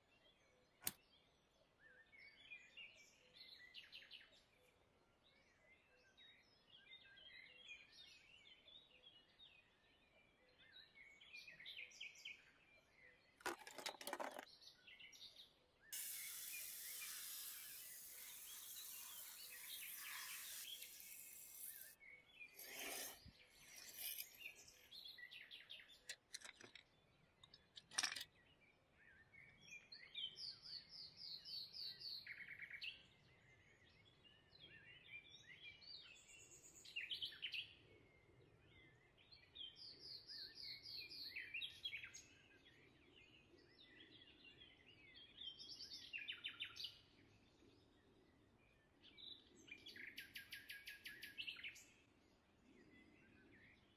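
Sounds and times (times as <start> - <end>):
faint birdsong: 0.0 - 53.9
water streaming and dripping: 16.0 - 22.0.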